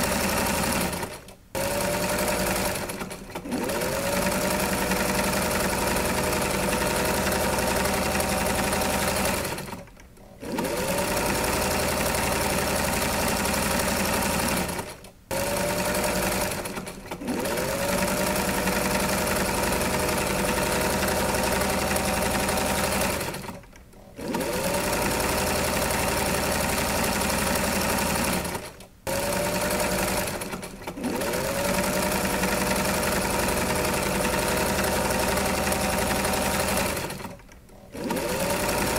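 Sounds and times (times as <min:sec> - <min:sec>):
sewing machine running: 0:00.0 - 0:38.9.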